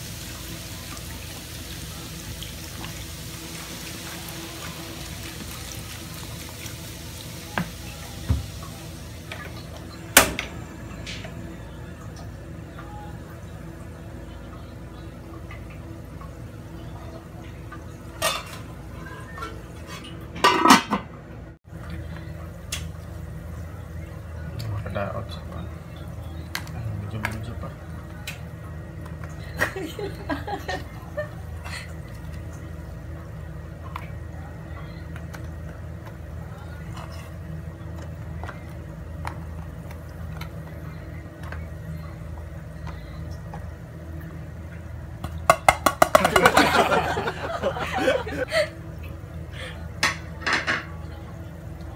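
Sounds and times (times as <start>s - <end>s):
soda pouring and splashing: 0.0s - 9.6s
onion slices tapping in pan: 45.5s - 46.6s.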